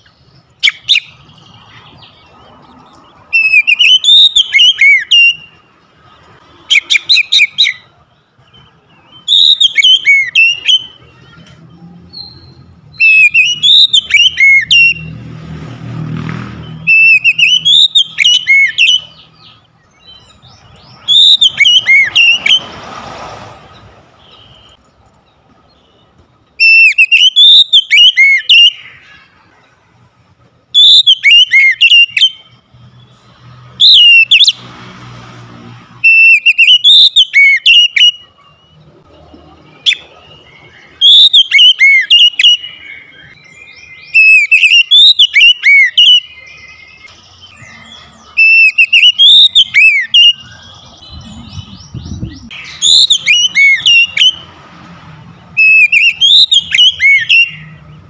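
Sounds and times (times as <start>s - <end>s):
bird singing whistled phrases: 3.3s - 5.6s, 6.7s - 7.9s, 8.5s - 11.4s, 12.1s - 15.1s, 16.7s - 22.6s, 26.6s - 29.1s, 30.8s - 32.6s, 33.8s - 34.6s, 36.0s - 38.9s, 39.7s - 54.5s, 55.6s - 57.8s.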